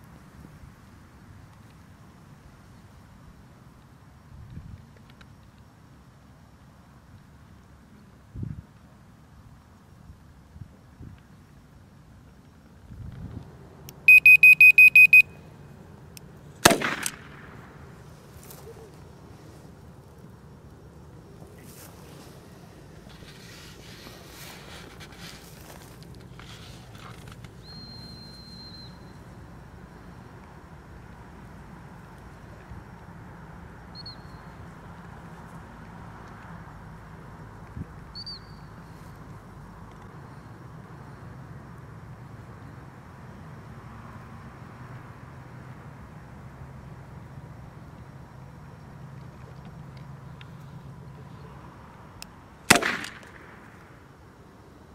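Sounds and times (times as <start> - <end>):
low outdoor rumble: 0.0 - 54.9
rapid high beeps: 14.1 - 15.4
short high chirps: 14.1 - 15.4
launcher firing bang: 16.6 - 17.6, 52.7 - 53.6.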